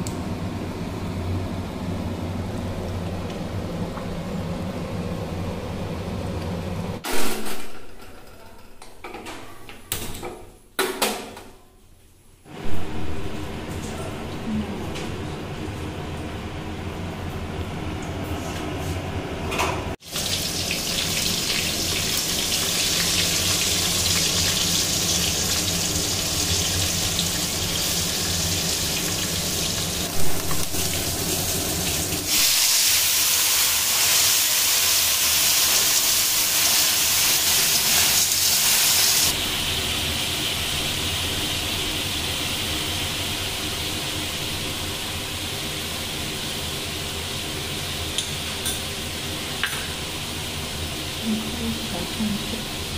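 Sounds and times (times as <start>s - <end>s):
snails sizzling in oil: 20.0s - 48.2s.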